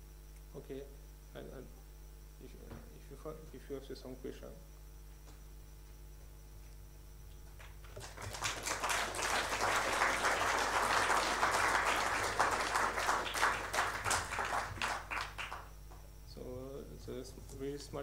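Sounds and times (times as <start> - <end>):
audience applauding: 7.9 - 15.7.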